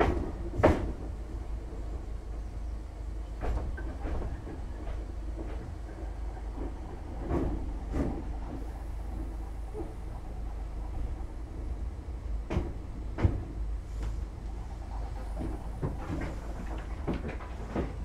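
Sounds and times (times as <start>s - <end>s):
clunks and knocks: 0.0s - 1.2s, 3.3s - 10.0s, 12.4s - 14.2s, 15.1s - 18.0s
train low rumble: 0.0s - 18.0s.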